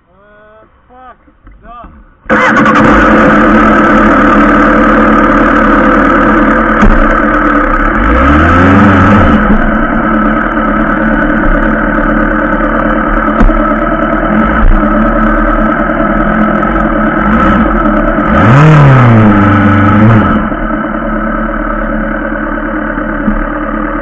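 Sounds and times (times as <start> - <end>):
motorcycle engine idling: 2.2 - 8.0, 9.4 - 18.6, 20.4 - 24.0
motorcycle engine revving: 2.3 - 24.0.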